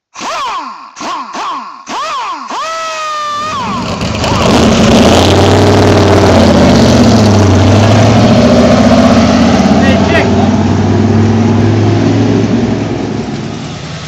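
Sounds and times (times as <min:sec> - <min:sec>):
car engine pulling away: 0:03.3 - 0:14.0.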